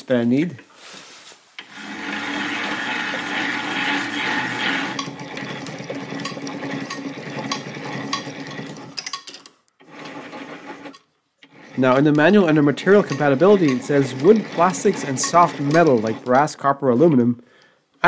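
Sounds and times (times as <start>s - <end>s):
metal lathe whirring: 1.6s - 9.0s, 9.8s - 16.6s.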